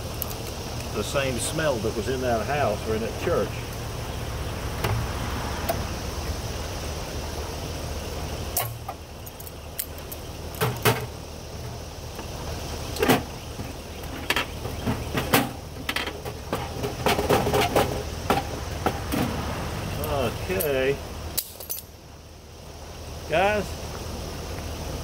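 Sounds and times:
steady low hum: 0.0s - 25.0s
metal clanks and knocks: 13.0s - 19.4s.

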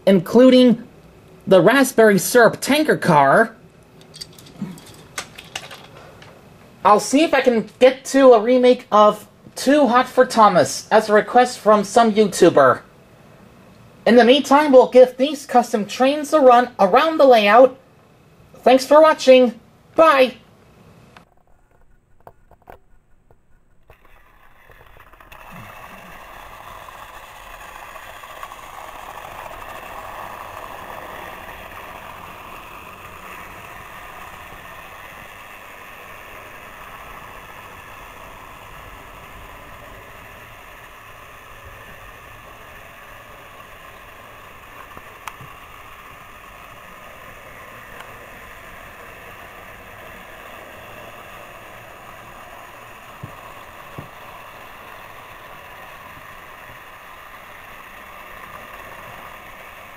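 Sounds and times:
toy train motors whirring: 4.0s - 6.4s, 21.3s - 59.9s.

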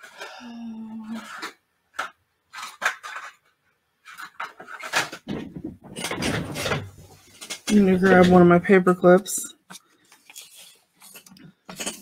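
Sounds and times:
craft supplies clicking and clattering: 1.1s - 8.5s, 9.7s - 12.0s.

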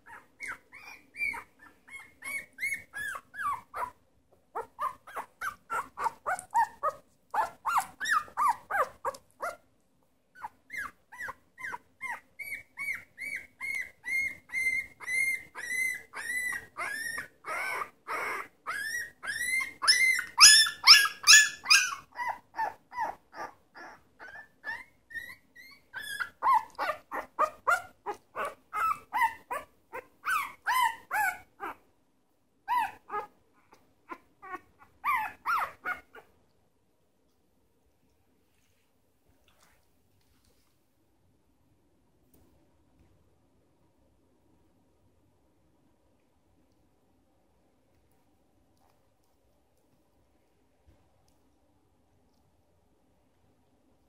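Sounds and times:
puppy whimpering and squeaking: 0.0s - 9.6s, 10.3s - 31.8s, 32.7s - 36.3s.

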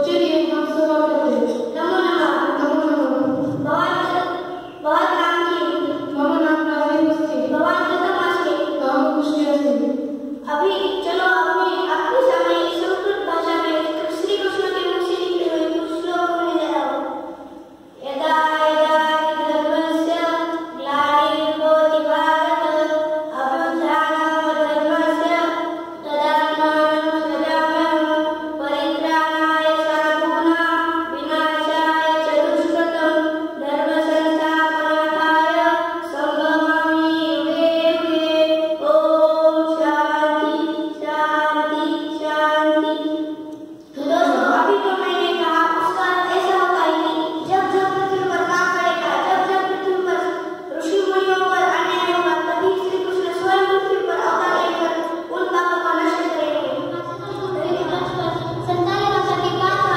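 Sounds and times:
boys singing into microphones: 56.7s - 59.9s.

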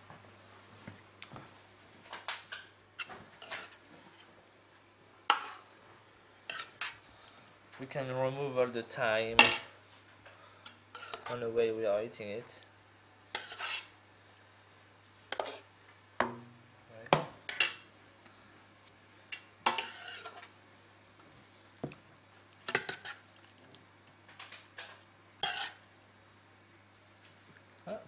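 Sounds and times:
metal spoon scraping a steel pot: 6.5s - 7.0s, 10.9s - 11.3s, 13.4s - 13.9s, 19.7s - 20.4s, 25.4s - 25.8s.

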